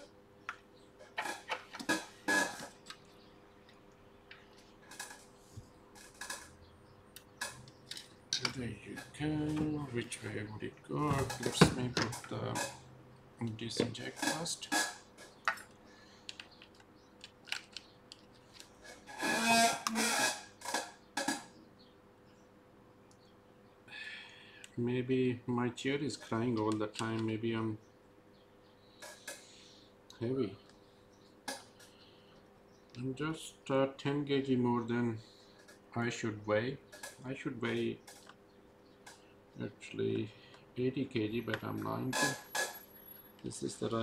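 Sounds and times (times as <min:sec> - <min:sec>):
faint steady hum: 0:00.0 - 0:44.0
chair creaking: 0:01.0 - 0:03.0, 0:04.4 - 0:06.6, 0:11.1 - 0:12.9, 0:13.7 - 0:15.4, 0:18.6 - 0:21.5, 0:41.7 - 0:42.9
laptop parts clicking and tapping: 0:15.3 - 0:18.7.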